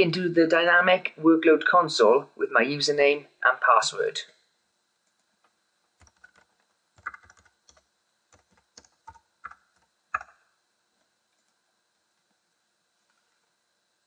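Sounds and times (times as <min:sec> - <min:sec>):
typing on computer keyboard: 0:06.0 - 0:10.4.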